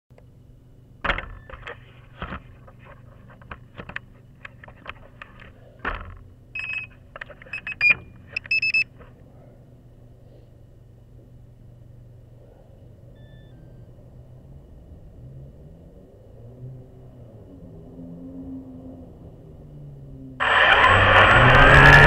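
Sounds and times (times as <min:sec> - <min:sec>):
faint hum: 0:00.1 - 0:16.4
high electronic beeps: 0:06.6 - 0:08.9, 0:13.2 - 0:13.9.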